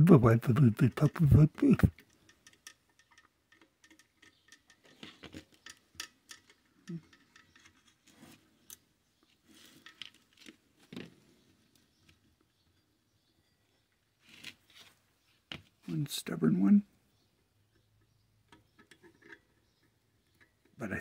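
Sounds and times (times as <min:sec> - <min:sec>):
small metal parts handled: 0:01.0 - 0:08.8, 0:09.4 - 0:10.6.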